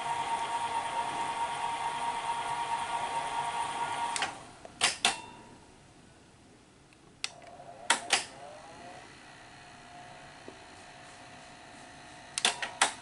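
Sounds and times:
tape deck motor whir: 0:07.5 - 0:13.0
sharp clicks: 0:12.4 - 0:13.0.

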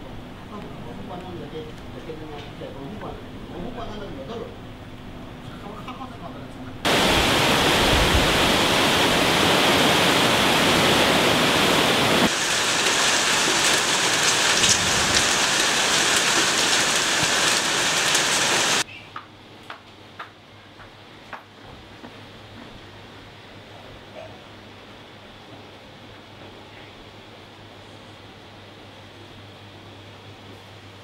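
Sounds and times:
heavy rain hissing: 0:06.9 - 0:18.8.

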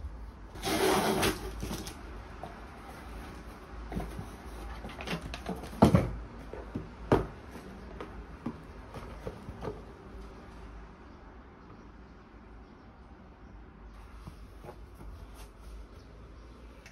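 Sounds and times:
cardboard scraping and rustling: 0:00.5 - 0:07.8
cardboard boxes knocking: 0:03.9 - 0:10.0.

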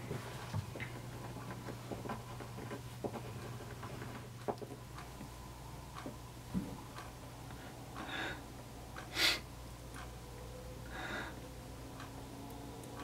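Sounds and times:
man breathing through nose: 0:08.0 - 0:08.5, 0:09.1 - 0:09.5, 0:10.8 - 0:11.6.

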